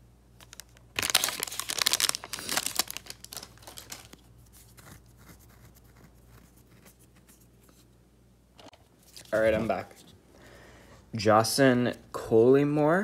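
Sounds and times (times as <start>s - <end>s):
foil wrapper crinkling and tearing: 0.4s - 5.6s.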